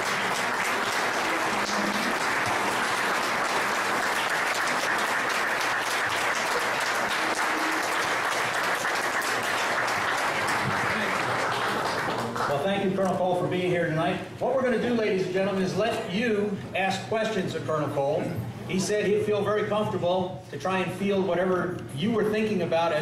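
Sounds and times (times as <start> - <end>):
audience applauding: 0.0 - 12.6.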